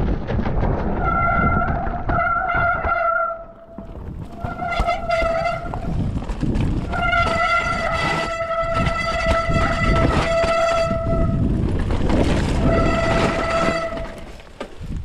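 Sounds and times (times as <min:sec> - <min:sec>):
tyres rumbling on trail: 0:00.0 - 0:15.0
bike disc brakes squealing: 0:04.3 - 0:06.0, 0:06.9 - 0:11.4.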